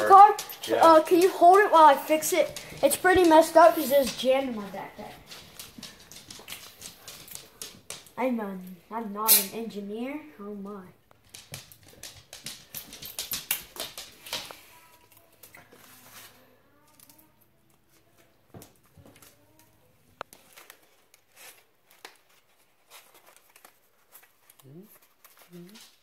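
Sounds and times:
paper rustling: 0.0 - 8.2, 20.3 - 26.0.

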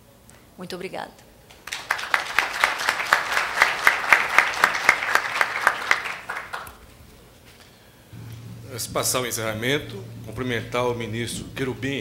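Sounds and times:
audience applauding: 1.6 - 7.0.

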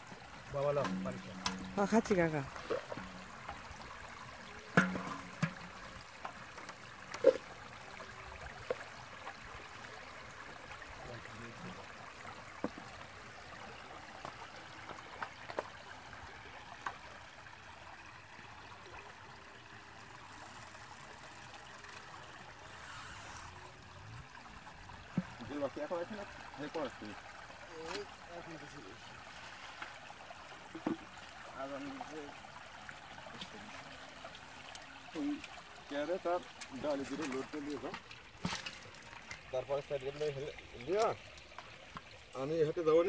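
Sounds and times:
water trickling: 0.0 - 43.0
short sharp splashes and knocks: 0.4 - 9.9, 25.0 - 32.2, 33.3 - 42.4.

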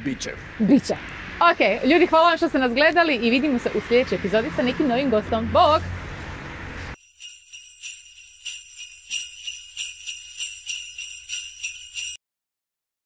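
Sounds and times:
sleigh bells jingling: 7.0 - 12.2.

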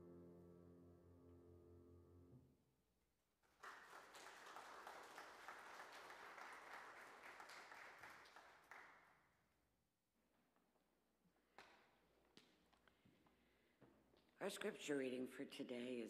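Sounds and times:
congregation applauding: 3.4 - 9.2.

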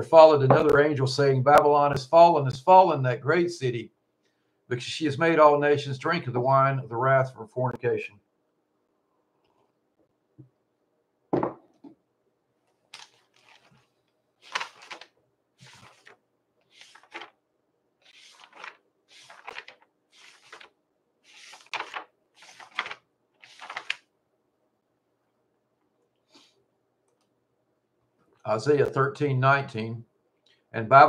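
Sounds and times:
book pages turning: 12.7 - 17.4, 18.0 - 24.1.

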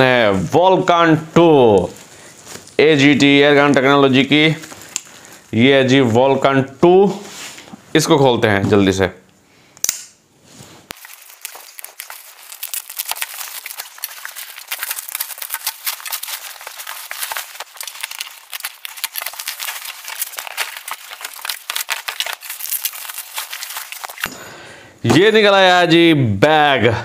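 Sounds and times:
plastic packaging crinkling: 0.0 - 6.4, 10.5 - 24.3.

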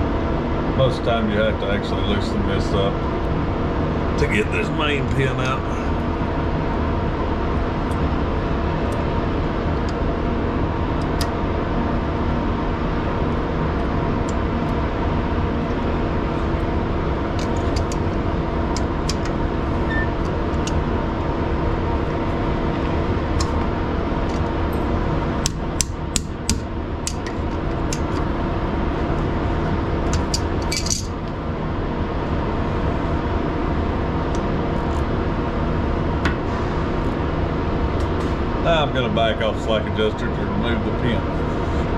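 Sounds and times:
steady mechanical hum: 0.0 - 41.9
metal clicks of hand tools: 30.1 - 31.1.

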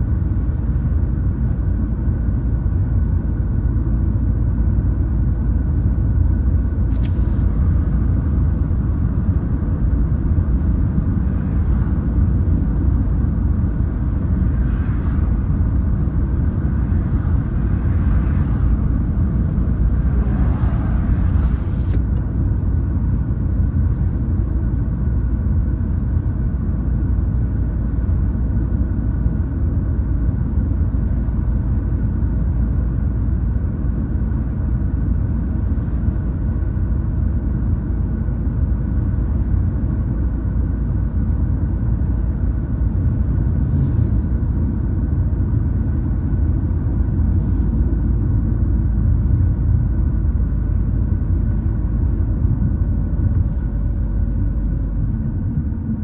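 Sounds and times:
car cabin road rumble: 0.0 - 56.0
oncoming traffic passing: 7.2 - 22.2.

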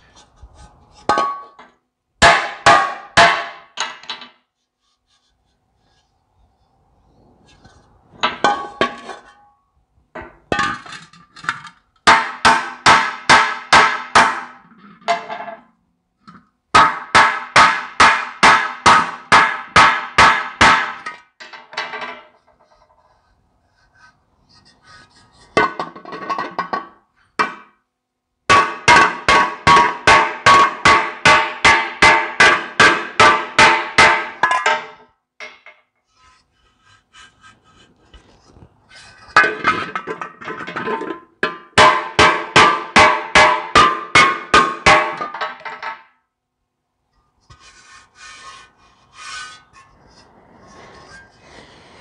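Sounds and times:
hammer blows on sheet metal: 2.2 - 3.8, 12.1 - 14.6, 16.8 - 21.4, 28.5 - 35.0, 41.4 - 45.8.

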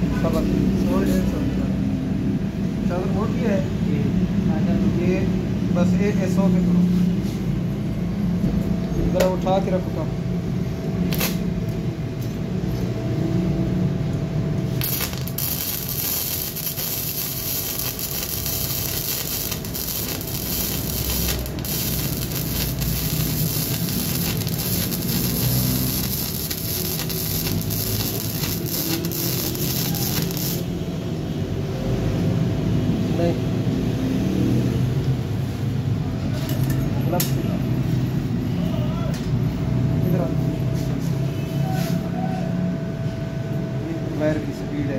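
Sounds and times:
welding arc crackling and hissing: 11.1 - 11.4, 14.6 - 30.8.

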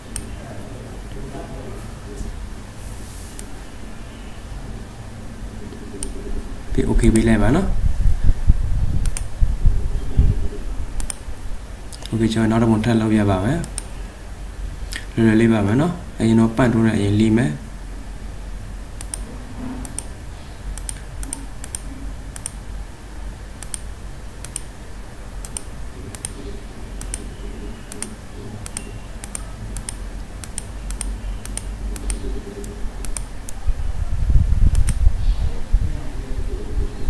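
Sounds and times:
mouse button clicking: 9.0 - 9.3, 11.0 - 11.2, 19.0 - 19.2, 19.8 - 20.1, 20.8 - 22.6, 23.6 - 24.7, 25.4 - 26.4, 27.0 - 27.3, 27.9 - 33.3, 34.7 - 35.0.

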